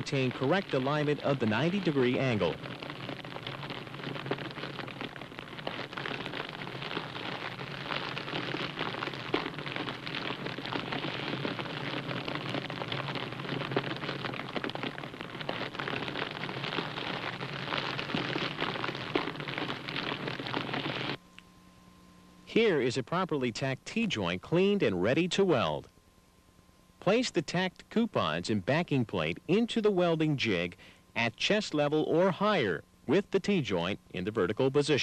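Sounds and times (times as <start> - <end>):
welding arc crackling hiss: 0.0 - 21.2.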